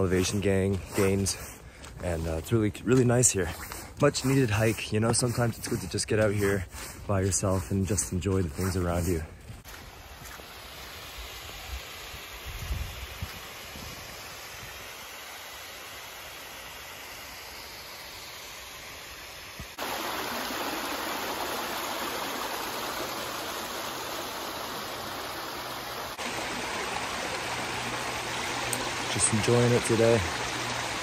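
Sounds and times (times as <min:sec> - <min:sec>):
stream running over rocks: 0:00.0 - 0:31.0
waterfall splashing into stream: 0:09.8 - 0:31.0.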